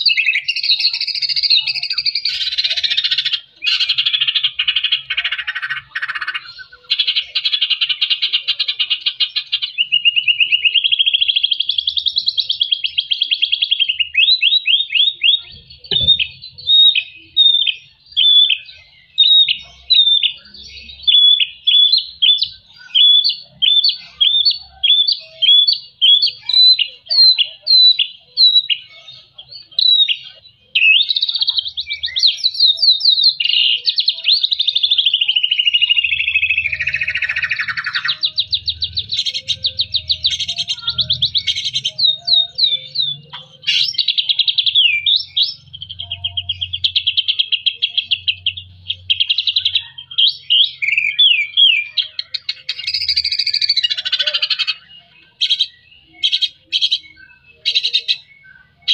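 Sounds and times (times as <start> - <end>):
bird warbling trill: 33.8 - 58.9.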